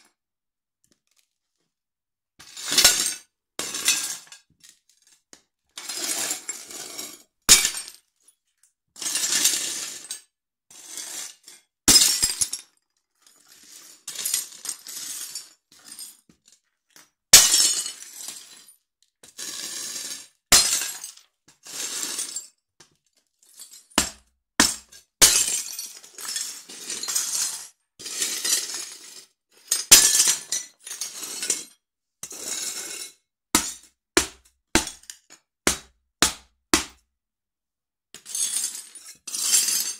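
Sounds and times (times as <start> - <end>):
ceramic plates breaking: 7.5 - 8.0, 17.4 - 17.9, 20.5 - 21.1, 24.0 - 25.9, 33.6 - 35.1
broken pieces crunching and clinking: 17.4 - 17.9, 23.6 - 27.5.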